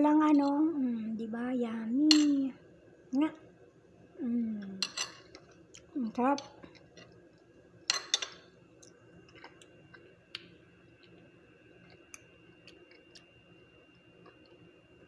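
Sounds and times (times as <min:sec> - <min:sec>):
metal spoon clinking on plate: 0:04.8 - 0:05.3, 0:07.9 - 0:08.4.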